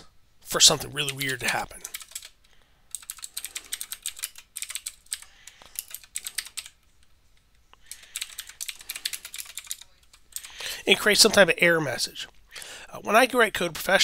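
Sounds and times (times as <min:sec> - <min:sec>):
keyboard typing: 0:00.6 - 0:10.7.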